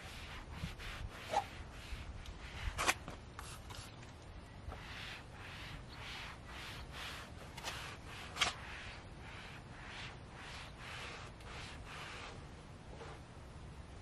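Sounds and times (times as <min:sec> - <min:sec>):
towel wiping car paint: 0:00.0 - 0:04.1, 0:04.7 - 0:13.3.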